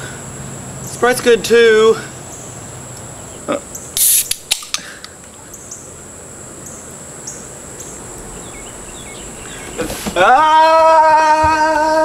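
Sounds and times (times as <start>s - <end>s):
insect chirps: 0.0s - 12.0s
insect drone: 0.0s - 12.0s
soda can opening pop and hiss: 4.0s - 4.9s.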